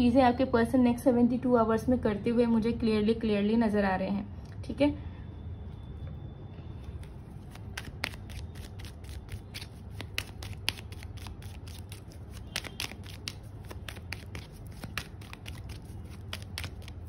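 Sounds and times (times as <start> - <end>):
cards being shuffled: 7.0 - 17.0.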